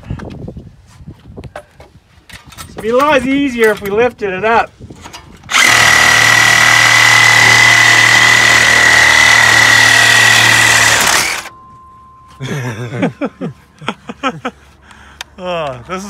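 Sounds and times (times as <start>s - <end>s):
reciprocating saw cutting metal pipe: 5.5s - 11.5s.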